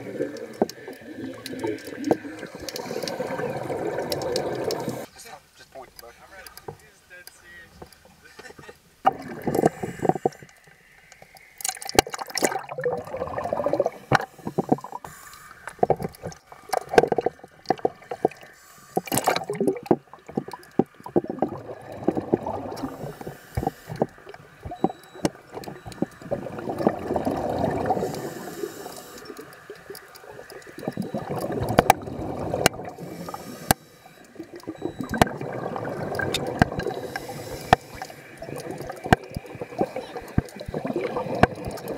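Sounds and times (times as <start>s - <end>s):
water gurgling underwater: 0.0s - 5.1s, 9.0s - 10.3s, 11.7s - 15.0s, 19.1s - 28.5s, 29.2s - 41.9s.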